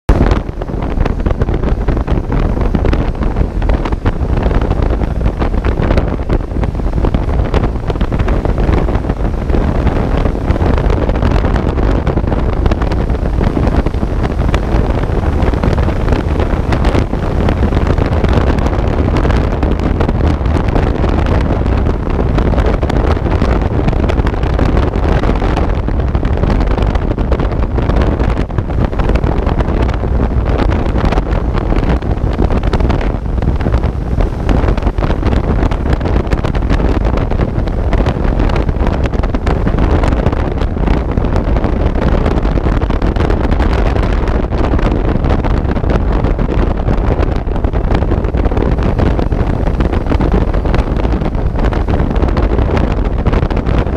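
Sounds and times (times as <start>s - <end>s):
wind buffeting microphone: 0.0s - 53.9s.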